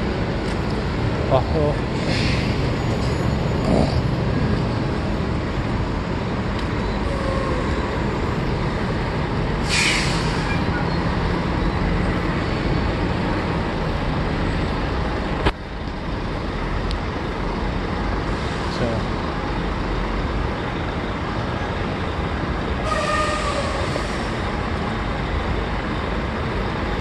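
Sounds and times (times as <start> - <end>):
road traffic noise: 0.0 - 27.0
short hiss: 9.6 - 10.5.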